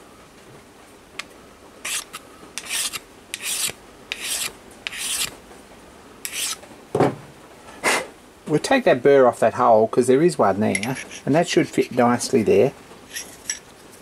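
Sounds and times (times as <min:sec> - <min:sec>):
hand file rasping on metal: 0:01.8 - 0:05.3, 0:06.3 - 0:06.6.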